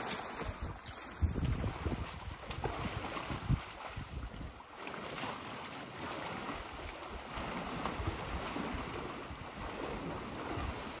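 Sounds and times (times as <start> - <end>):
wind buffeting microphone: 0.4 - 4.6.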